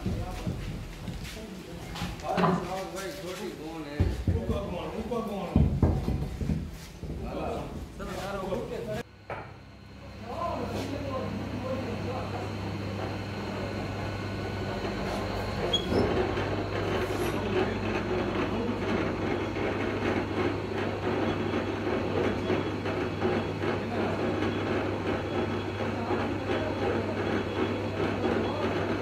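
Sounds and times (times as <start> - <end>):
machinery low hum: 7.1 - 29.0.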